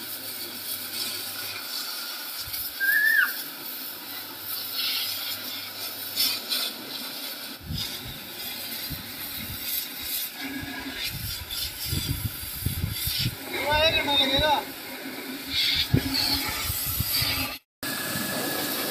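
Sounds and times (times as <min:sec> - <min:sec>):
pressure washer spraying metal: 0:00.0 - 0:18.9
short high chirp: 0:02.8 - 0:03.4.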